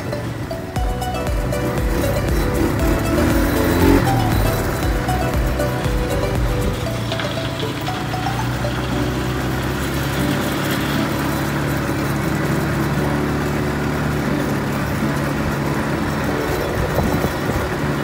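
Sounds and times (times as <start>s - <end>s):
quad bike engine drone: 0.0s - 18.0s
tyres rumbling on dirt: 0.0s - 18.0s
wind noise: 16.5s - 18.0s.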